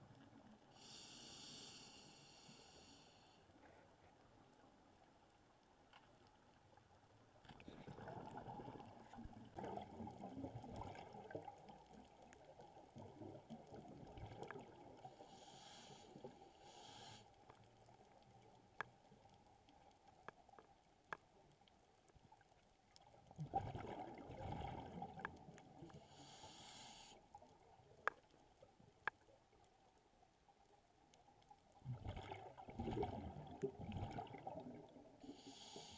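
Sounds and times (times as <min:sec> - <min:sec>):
regulator inhale hiss: 0:00.7 - 0:03.5, 0:15.2 - 0:17.4, 0:26.0 - 0:27.3, 0:35.2 - 0:35.9
underwater exhaled bubbles: 0:07.5 - 0:16.6, 0:23.0 - 0:26.6, 0:31.8 - 0:35.7.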